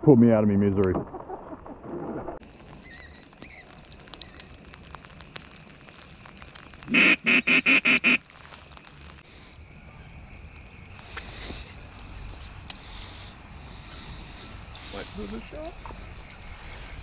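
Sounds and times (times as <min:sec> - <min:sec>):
duck call quacks: 0:06.9 - 0:08.2.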